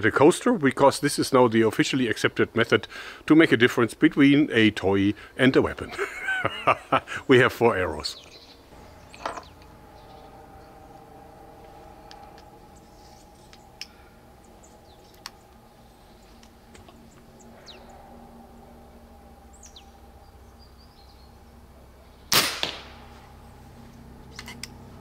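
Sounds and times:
airgun arrow shot: 22.3s - 23.1s.

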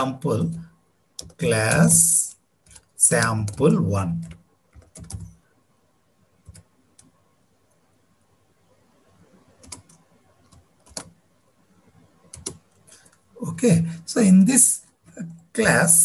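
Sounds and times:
computer keyboard typing: 1.1s - 2.0s, 2.6s - 5.4s, 6.4s - 7.2s, 9.6s - 11.2s, 12.2s - 13.2s.

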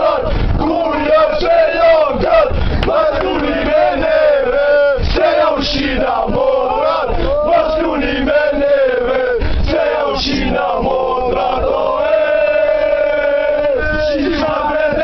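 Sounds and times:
men chanting and singing: 0.0s - 15.0s.

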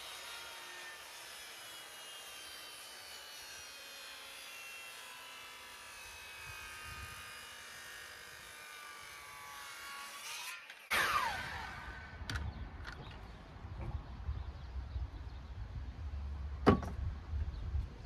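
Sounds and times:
distant engine drone: 10.9s - 16.7s.

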